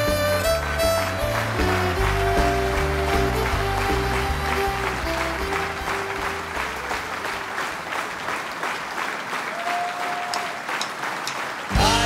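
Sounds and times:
band playing low notes: 0.0 - 8.1, 11.7 - 12.0
audience clapping and cheering: 0.0 - 12.0.

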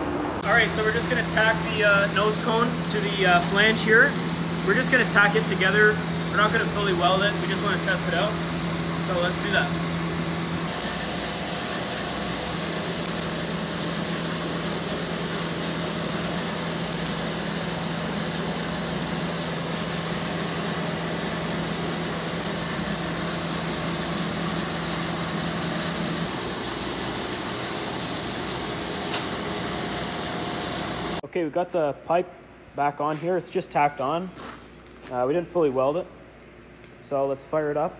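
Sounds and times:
welding torch hiss: 0.4 - 31.2, 33.2 - 35.3.

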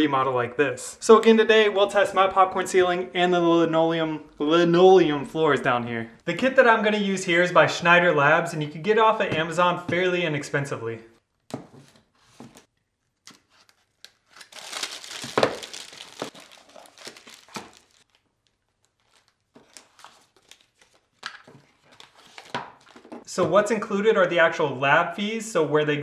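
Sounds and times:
plastic wrapping crinkling: 12.6 - 23.2.

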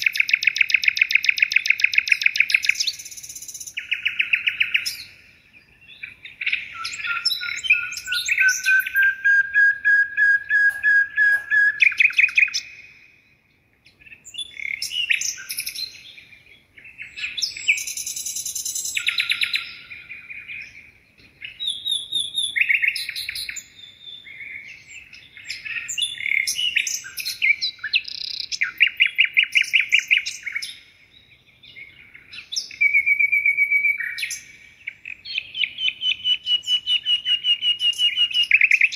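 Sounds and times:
songbird trills and chirps: 0.0 - 38.9.

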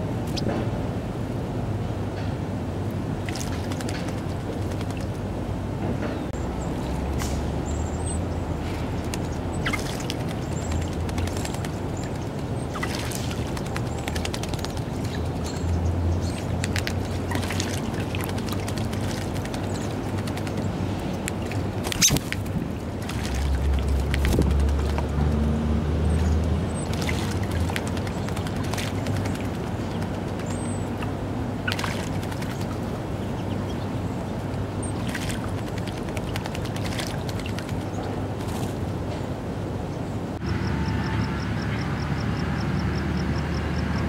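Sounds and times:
birds splashing in water: 3.1 - 5.2, 6.5 - 38.9.

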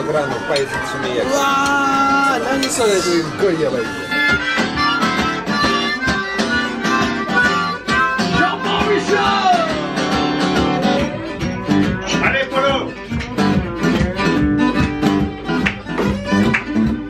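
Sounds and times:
acoustic guitar melody: 0.0 - 17.0.

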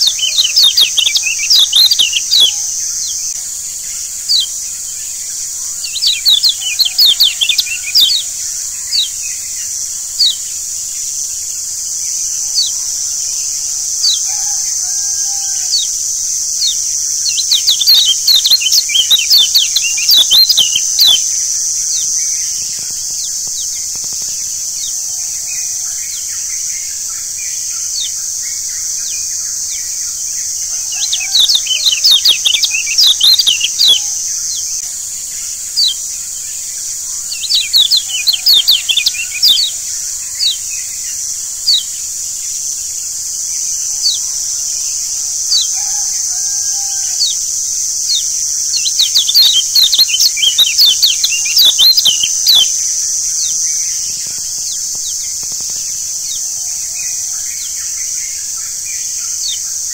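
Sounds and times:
high insect drone: 0.0 - 59.9.

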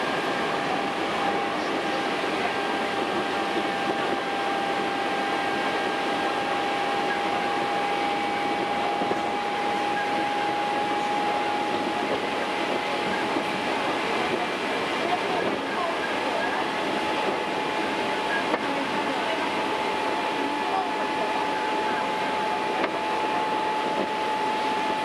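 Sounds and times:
train running rumble and hiss: 0.0 - 25.0.

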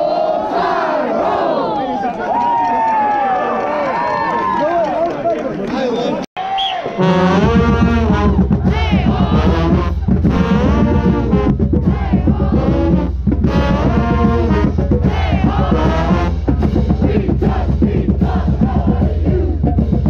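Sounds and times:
deep bass: 7.0 - 20.0.

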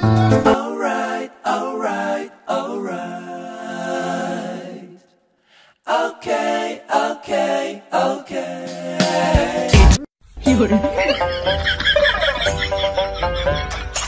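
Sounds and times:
person singing: 0.0 - 5.0, 5.9 - 11.3.

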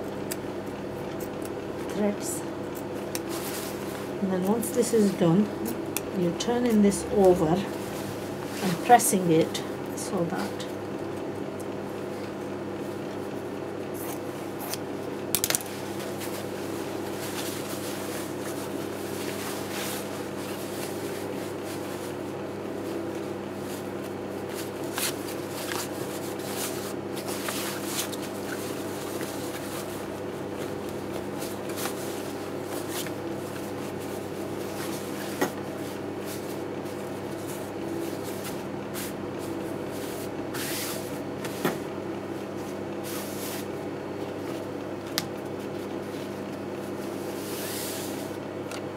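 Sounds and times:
electric hum: 0.0 - 48.9.

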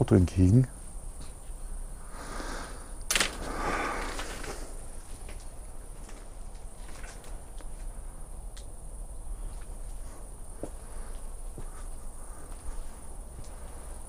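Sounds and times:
insects trilling: 0.0 - 14.0
footsteps on paving: 9.5 - 13.8.

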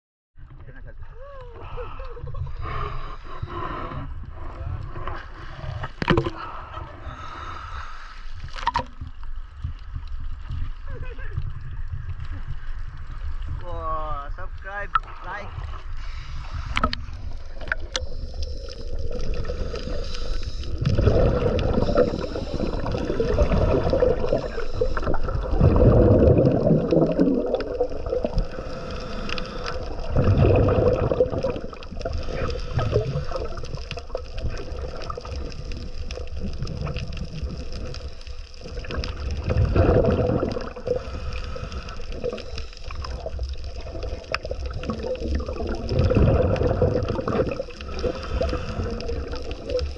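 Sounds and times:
steady water noise: 0.4 - 49.9
diver exhaling bubbles underwater: 16.7 - 49.9.

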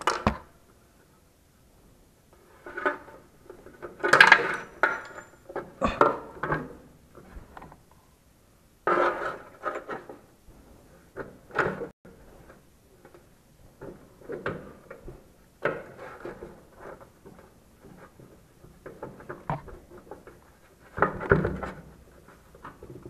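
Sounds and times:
metal tools clinking and scraping: 4.1 - 6.0.

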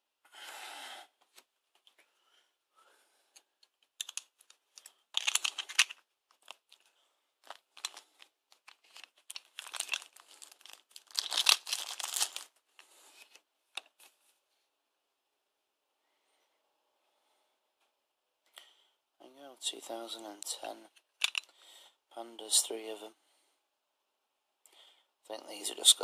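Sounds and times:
plastic packaging crinkling: 4.0 - 6.8, 7.4 - 12.9, 21.2 - 21.5.

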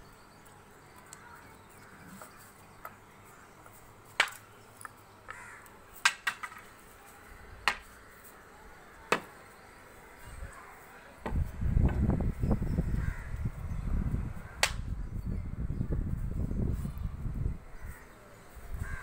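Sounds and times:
stick knocking on concrete: 6.0 - 6.6, 7.6 - 7.9.

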